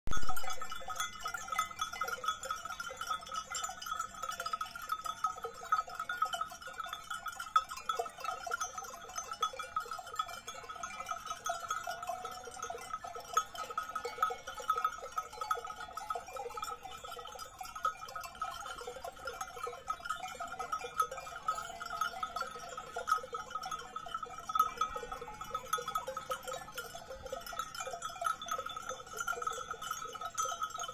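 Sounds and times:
sheep bells clinking: 0:00.1 - 0:30.9.

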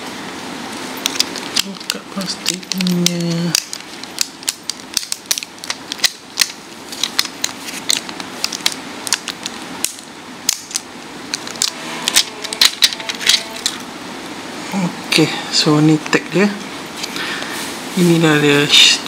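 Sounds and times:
plastic wrapping crinkling: 0:00.8 - 0:13.8.

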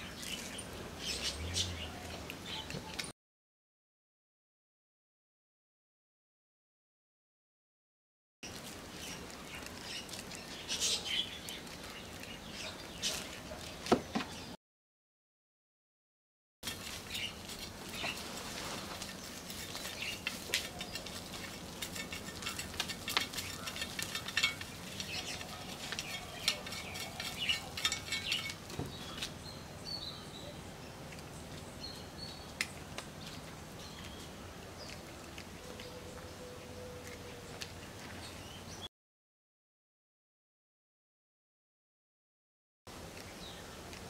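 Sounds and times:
hand fork scratching soil: 0:16.6 - 0:29.6.

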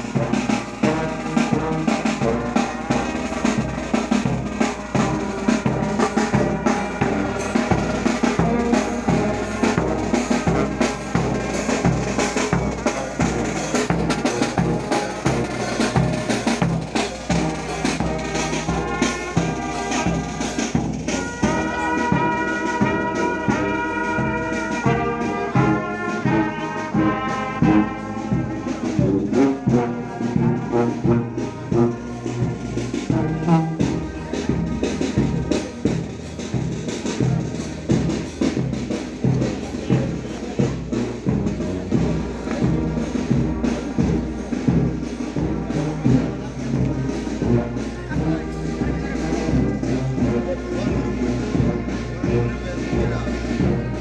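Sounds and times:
marching brass band playing: 0:00.0 - 0:54.0
steady drum beat: 0:00.0 - 0:54.0.

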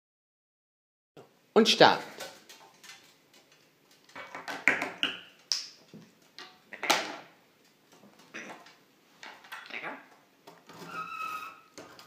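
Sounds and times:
plastic toys clacking and rattling: 0:02.2 - 0:05.2
parrot squeak: 0:10.8 - 0:11.7.

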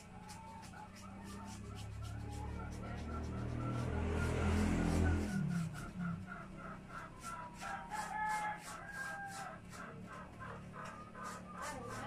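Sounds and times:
rooster crowing: 0:07.4 - 0:09.8.

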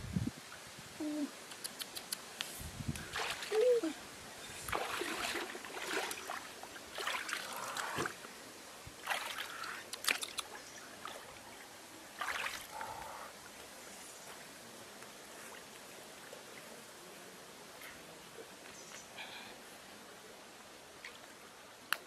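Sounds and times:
shallow water splashing: 0:03.0 - 0:03.9, 0:04.6 - 0:08.4, 0:09.0 - 0:13.2.

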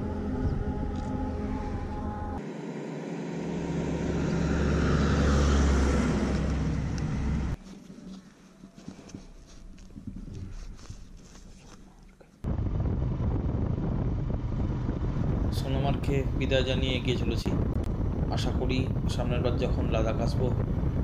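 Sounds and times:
tanker truck passing: 0:01.2 - 0:07.6.

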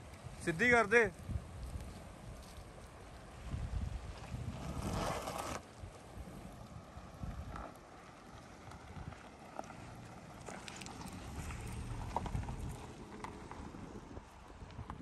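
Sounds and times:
stones crunching under tyres: 0:01.1 - 0:15.0
car rumbling over gravel: 0:02.4 - 0:15.0.

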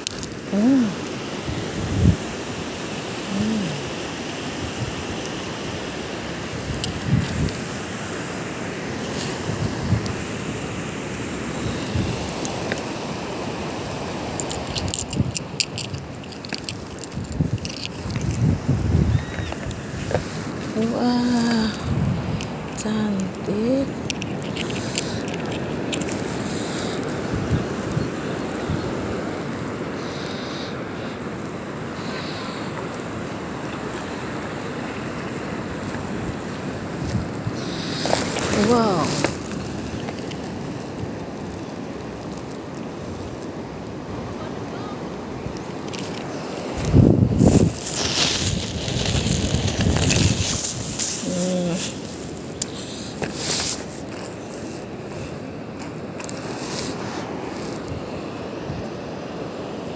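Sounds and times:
wind on microphone: 0:00.0 - 0:08.1, 0:08.8 - 0:10.9, 0:11.5 - 0:42.2, 0:42.8 - 0:55.5
crunching on coarse sand: 0:00.0 - 0:44.2, 0:45.4 - 0:59.9
surf rushing: 0:00.0 - 0:59.9
sharp clicks and crunches: 0:14.3 - 0:18.5, 0:24.0 - 0:27.1, 0:37.0 - 0:43.6, 0:45.6 - 0:54.4.

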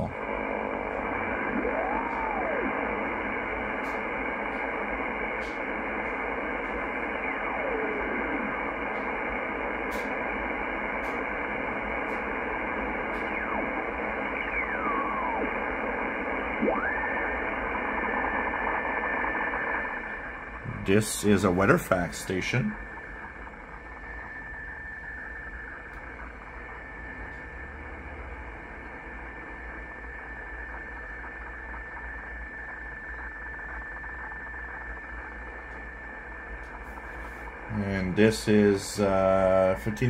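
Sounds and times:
shortwave receiver hiss and static: 0:00.0 - 0:40.0
steady radio whistle: 0:00.0 - 0:40.0.

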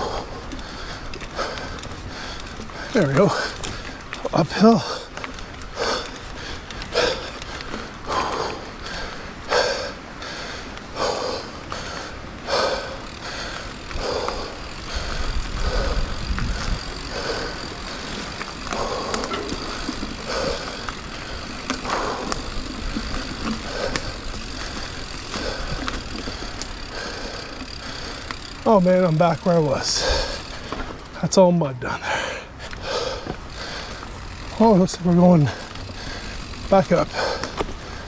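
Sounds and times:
person breathing hard: 0:00.0 - 0:31.1, 0:31.8 - 0:34.6, 0:35.2 - 0:38.0
bicycle tyres on dirt: 0:00.0 - 0:38.0
wind rumbling on microphone: 0:05.0 - 0:28.5.

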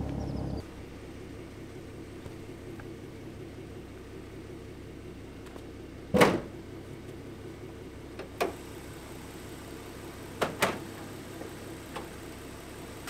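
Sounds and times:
steady low hum: 0:00.0 - 0:13.0
car hood latch clunk: 0:06.1 - 0:06.5.

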